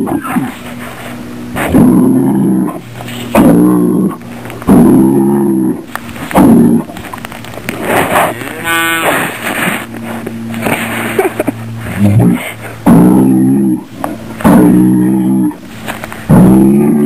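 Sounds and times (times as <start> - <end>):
bull bellowing: 0.0 - 17.0.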